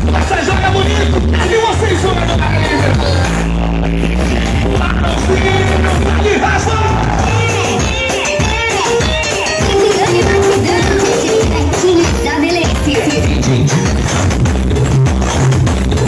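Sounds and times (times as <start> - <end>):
loud dance music: 0.0 - 16.0
person singing: 9.6 - 14.0.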